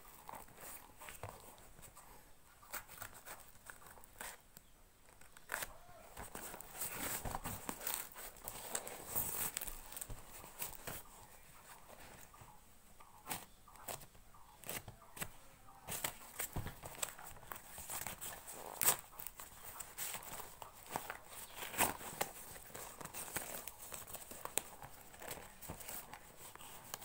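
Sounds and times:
cardboard wrapping being cut: 0:15.9 - 0:27.0
packing tape tearing: 0:15.9 - 0:27.0.

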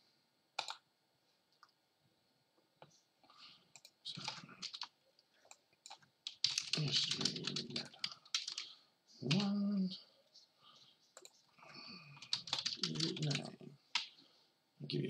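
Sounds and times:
typing on computer keyboard: 0:00.6 - 0:00.8, 0:03.8 - 0:04.9, 0:05.8 - 0:08.7, 0:09.3 - 0:09.6, 0:12.2 - 0:14.1.

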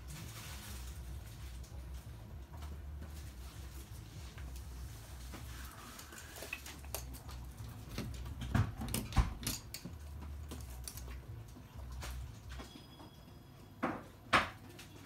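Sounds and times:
dog claws clicking on hard floor: 0:06.4 - 0:11.2.

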